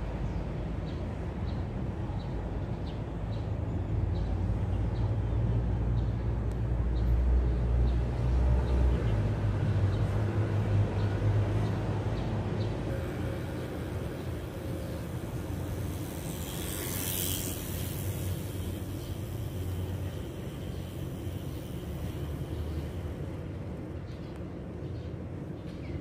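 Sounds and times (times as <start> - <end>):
low outdoor rumble: 12.0 - 26.0.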